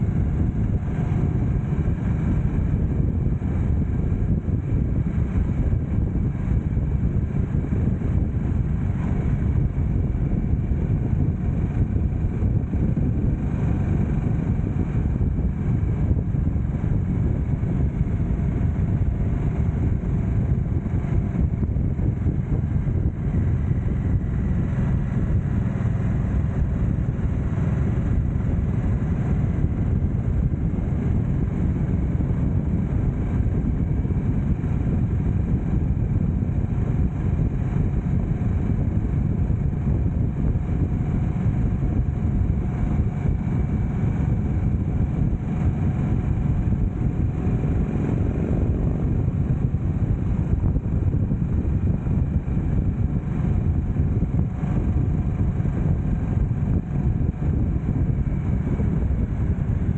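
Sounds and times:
motorcycle engine cruising: 0:00.0 - 0:59.9
wind and road noise rushing: 0:00.0 - 0:59.9.

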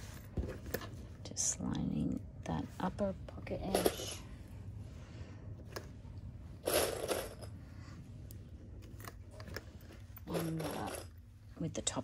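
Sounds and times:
fabric rustling: 0:00.0 - 0:01.2.

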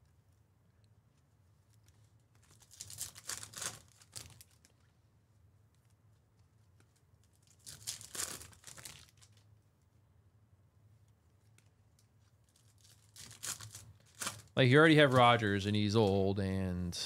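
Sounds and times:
foil wrapper tearing and crinkling: 0:02.4 - 0:04.8, 0:07.2 - 0:09.5, 0:11.5 - 0:14.5.

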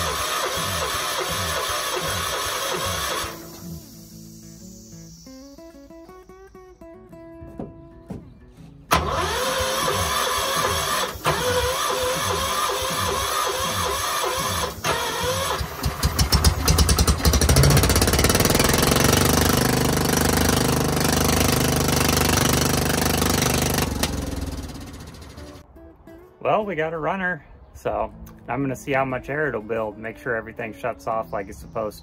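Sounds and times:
electric starter cranking engine: 0:00.0 - 0:04.4, 0:08.9 - 0:25.6
engine running: 0:00.0 - 0:06.0, 0:08.8 - 0:25.6.

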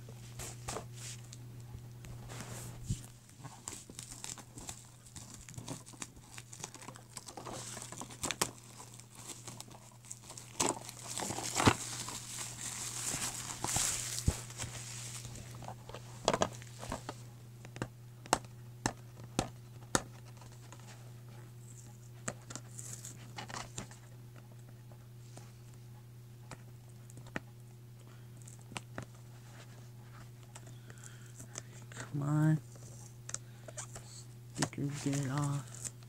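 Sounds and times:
steady low hum: 0:00.0 - 0:36.0
shrink wrap crinkling: 0:00.3 - 0:17.3, 0:28.1 - 0:36.0.

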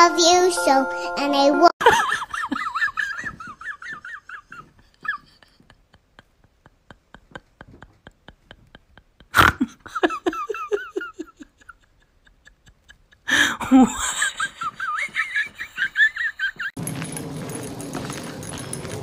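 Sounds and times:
person laughing: 0:01.8 - 0:16.8.

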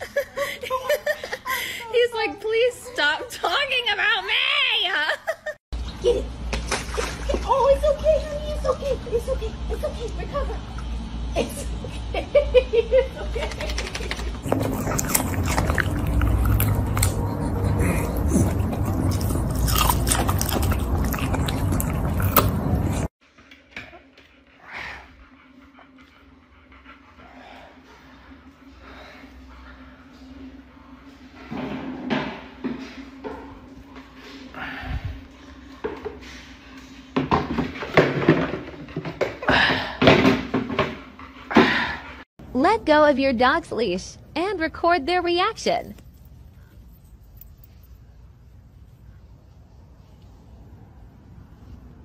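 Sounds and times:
dog crunching broccoli: 0:14.4 - 0:23.1.

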